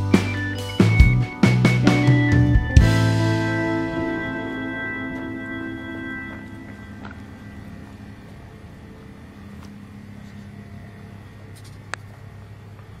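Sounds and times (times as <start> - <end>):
low outdoor rumble: 1.0 - 13.0.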